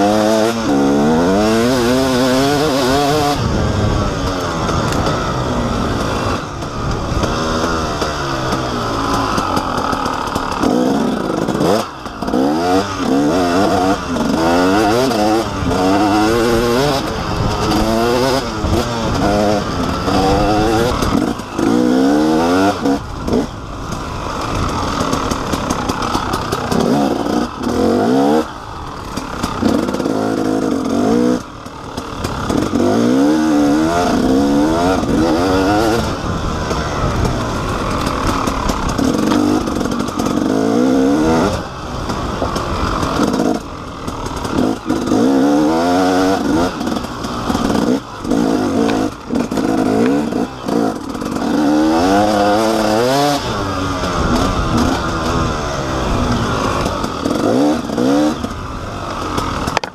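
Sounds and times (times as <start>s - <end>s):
two-stroke engine revving: 0.0s - 59.9s.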